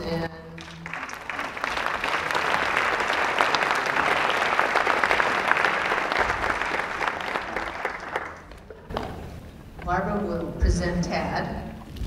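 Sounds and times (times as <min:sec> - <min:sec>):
audience applauding: 0:00.6 - 0:09.2.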